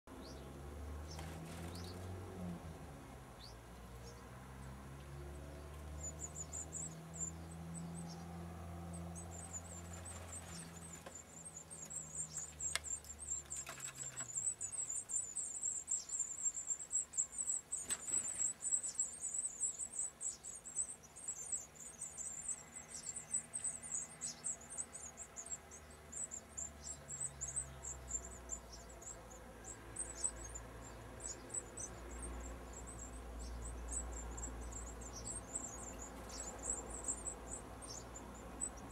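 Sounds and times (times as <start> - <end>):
nestlings squeaking: 30.0 - 38.9.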